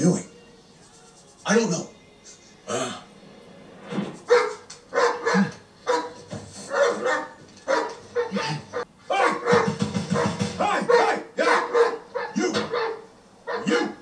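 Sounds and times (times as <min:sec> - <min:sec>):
man barking like a dog: 0:04.3 - 0:14.0.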